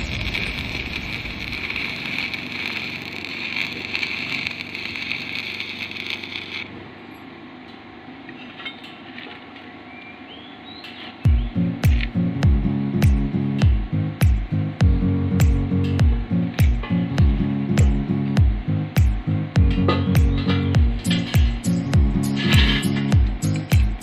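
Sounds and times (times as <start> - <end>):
welding arc hissing: 0.0 - 7.0, 10.9 - 24.0
loud background music: 11.3 - 24.0.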